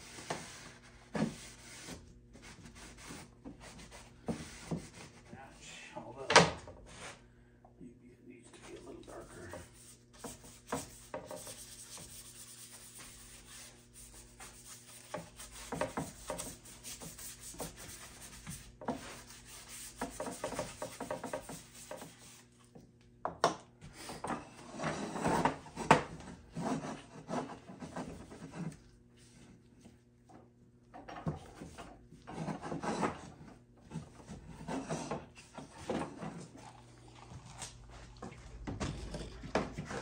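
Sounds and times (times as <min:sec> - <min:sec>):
cloth rubbing on wood: 0:09.1 - 0:22.5.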